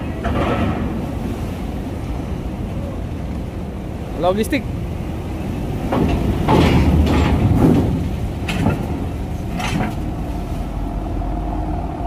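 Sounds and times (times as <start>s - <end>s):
truck engine rumble: 0.0s - 12.0s
clunks and knocks on ramp: 0.1s - 1.1s, 5.8s - 10.4s.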